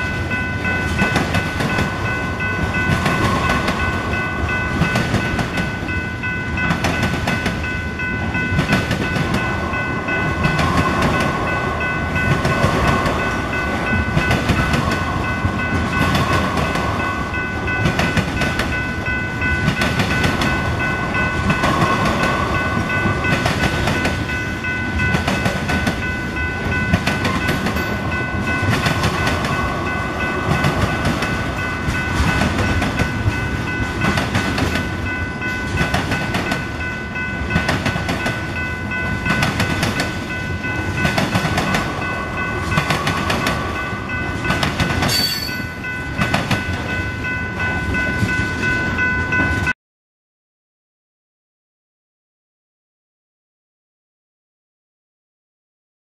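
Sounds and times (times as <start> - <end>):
steel wheels rumbling on rail: 0.0 - 49.7
wheels clacking over rail joints: 0.3 - 47.0
high ringing tone: 26.0 - 28.7, 45.1 - 46.1.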